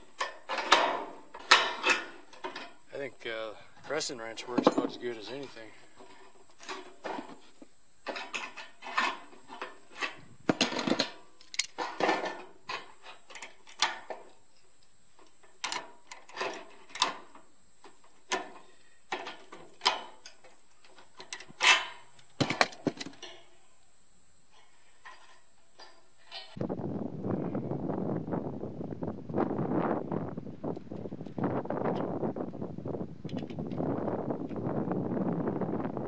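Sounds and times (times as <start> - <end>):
small metallic clanks: 0.0 - 2.9, 3.8 - 14.6, 15.2 - 23.7, 24.5 - 26.6
faint high hiss: 0.0 - 26.6
metal clicks and scrapes: 8.0 - 14.2.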